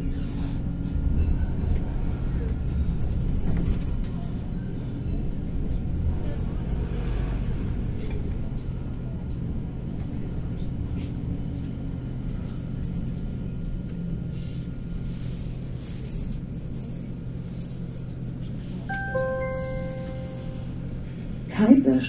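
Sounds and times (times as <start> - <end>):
tram running rumble and hum: 0.0 - 22.0
multi-note chime: 18.9 - 21.0.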